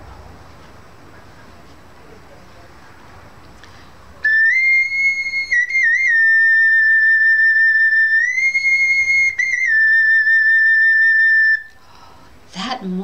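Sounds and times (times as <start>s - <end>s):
whistle blown in high notes: 4.3s - 11.7s.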